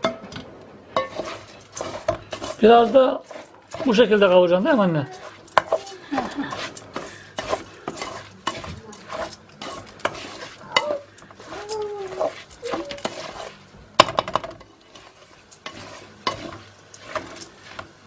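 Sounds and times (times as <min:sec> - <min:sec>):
light sizzling: 0:00.0 - 0:18.0
wooden spoon scraping steel bowl: 0:00.9 - 0:18.0.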